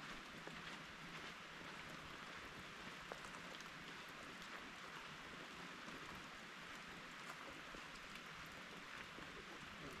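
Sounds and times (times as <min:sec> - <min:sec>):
faint rain falling: 0:00.0 - 0:10.0
rain drop ticks: 0:03.0 - 0:03.8, 0:05.8 - 0:10.0.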